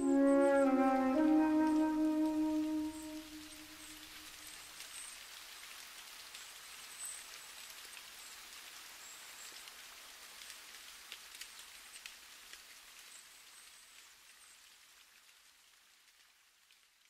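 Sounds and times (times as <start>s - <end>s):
held music note: 0.0s - 3.8s
faint crackling hiss: 0.0s - 17.0s.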